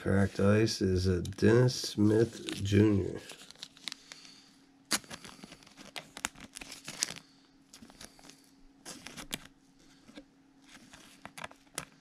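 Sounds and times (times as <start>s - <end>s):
thin plastic crinkling: 2.2s - 9.6s.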